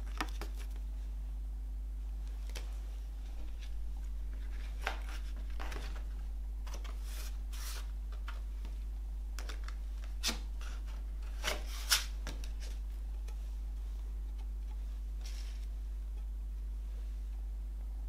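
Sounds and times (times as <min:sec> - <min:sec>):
steady low hum: 0:00.0 - 0:18.0
cardboard sliding and rustling: 0:04.3 - 0:07.9, 0:10.2 - 0:12.8, 0:15.2 - 0:15.7.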